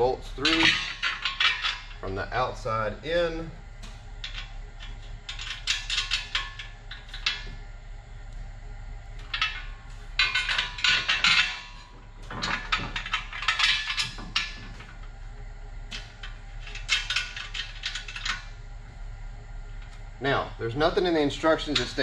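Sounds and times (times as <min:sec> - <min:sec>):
metal bolts clinking: 0:00.0 - 0:07.6, 0:09.2 - 0:15.1, 0:15.9 - 0:18.6, 0:21.0 - 0:22.0.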